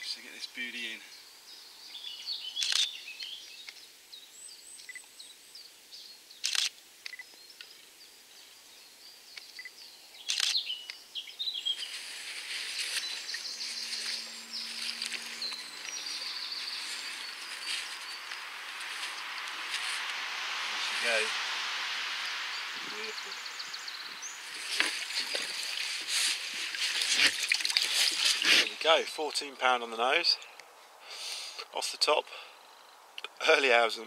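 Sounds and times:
birds singing: 0:00.0 - 0:34.0
sharp clicks: 0:02.6 - 0:02.9, 0:06.4 - 0:07.8, 0:10.3 - 0:11.0
rushing water hiss: 0:11.8 - 0:29.4.

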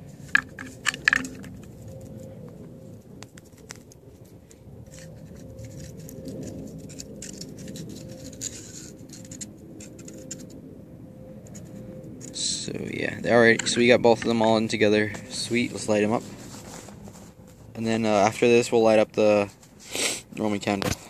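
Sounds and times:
launch tube clicks and knocks: 0:00.3 - 0:01.6
sticks scratching in a tube: 0:03.3 - 0:10.6.

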